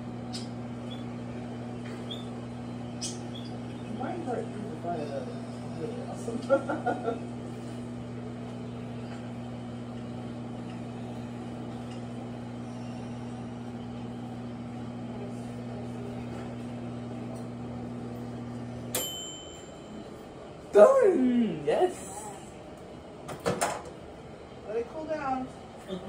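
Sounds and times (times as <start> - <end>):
microwave oven humming: 0.0 - 26.0
microwave timer bell ding: 18.9 - 20.3.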